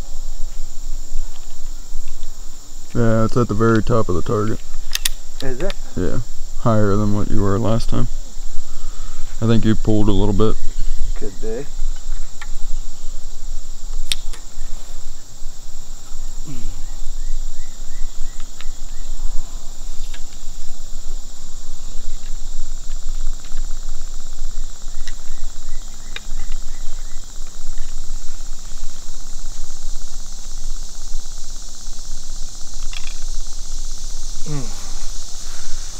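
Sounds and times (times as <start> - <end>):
high-pitched insect chorus: 0.0 - 35.9
crossbow cocking clicks: 4.6 - 5.8, 14.0 - 14.5, 32.8 - 33.2.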